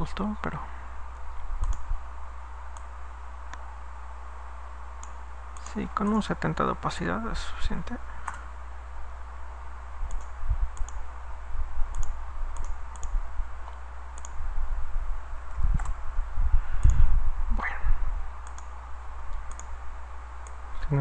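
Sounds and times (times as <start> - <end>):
steady low hum: 0.0 - 21.0
computer mouse clicking: 1.6 - 1.9, 2.7 - 2.9, 5.0 - 6.2, 8.2 - 8.4, 10.1 - 11.0, 11.9 - 14.4, 15.4 - 16.0, 18.4 - 19.7.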